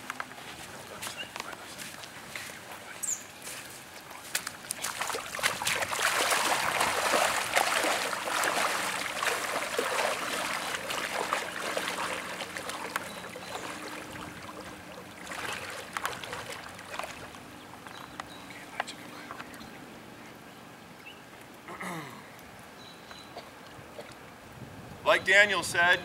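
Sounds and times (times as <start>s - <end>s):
water splashing around wading legs: 3.8s - 18.2s.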